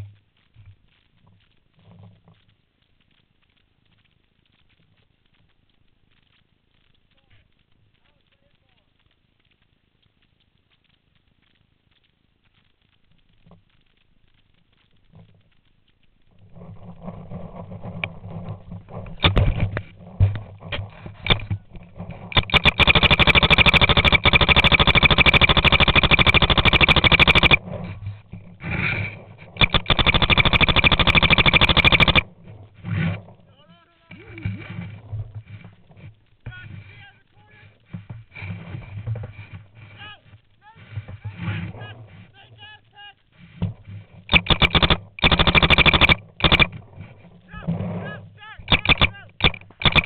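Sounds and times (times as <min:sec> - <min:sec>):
paintball marker firing: 0:22.3 - 0:27.6, 0:29.5 - 0:32.3, 0:44.3 - 0:46.8, 0:48.6 - 0:50.0.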